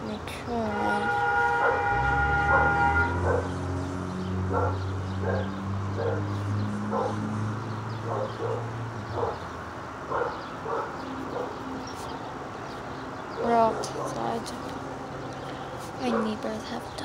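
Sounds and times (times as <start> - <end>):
dog barking: 1.6 - 1.9, 2.5 - 3.6, 4.5 - 7.2, 8.0 - 9.4, 10.1 - 11.6, 13.4 - 14.2, 16.0 - 16.4.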